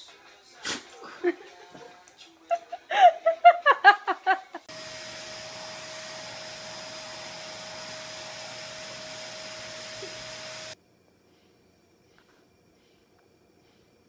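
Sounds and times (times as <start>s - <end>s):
vacuum cleaner running with whine: 4.7s - 10.8s.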